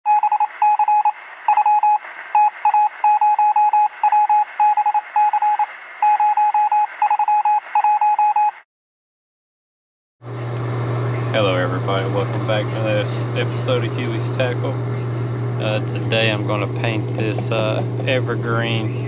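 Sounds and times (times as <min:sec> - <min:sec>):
electronic beep pulses: 0:00.1 - 0:08.6.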